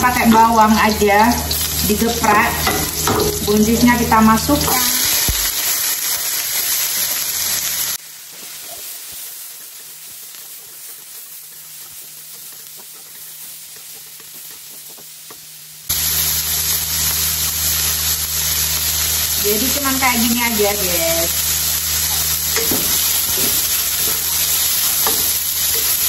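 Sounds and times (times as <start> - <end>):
vegetables sizzling in hot oil: 0.0 - 26.0
spatula scraping and tapping pan: 22.1 - 26.0.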